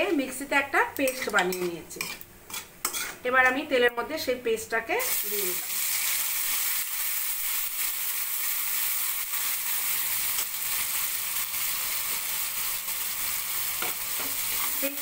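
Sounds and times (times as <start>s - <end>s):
paste sizzling in hot oil: 5.0s - 15.0s.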